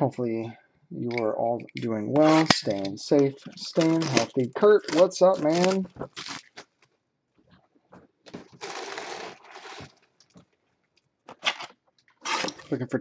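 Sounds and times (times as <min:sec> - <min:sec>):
plastic shrink wrap rustling: 0:02.2 - 0:06.9, 0:08.3 - 0:10.5, 0:11.3 - 0:12.8.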